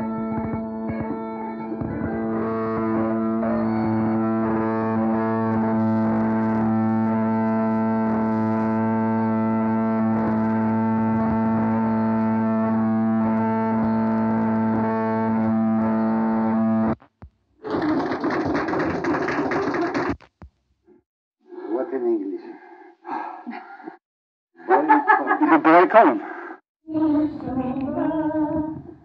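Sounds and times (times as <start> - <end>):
bagpipes playing: 0.0 - 17.0
audio feedback: 0.0 - 21.0.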